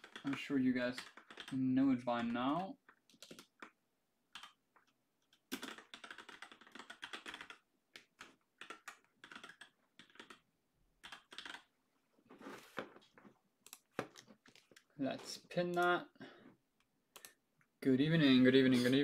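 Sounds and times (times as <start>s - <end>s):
computer keyboard typing: 0.0s - 11.7s, 13.6s - 14.9s, 17.1s - 17.4s.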